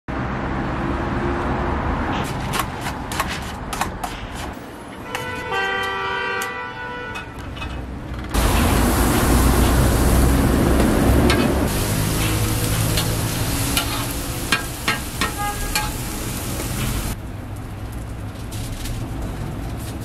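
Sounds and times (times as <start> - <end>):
multi-tone horn: 5.0 - 7.2, 15.2 - 16.0.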